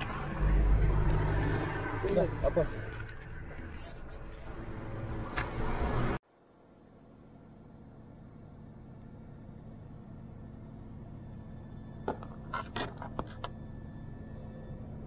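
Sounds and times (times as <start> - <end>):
low steady hum: 6.3 - 15.0.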